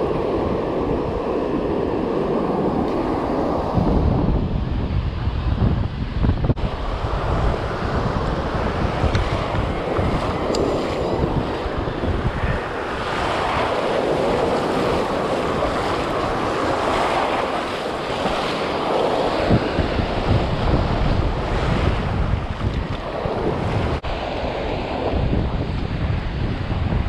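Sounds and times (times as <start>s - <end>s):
wind buffeting microphone: 0.0s - 27.0s
surf breaking on beach: 6.5s - 27.0s.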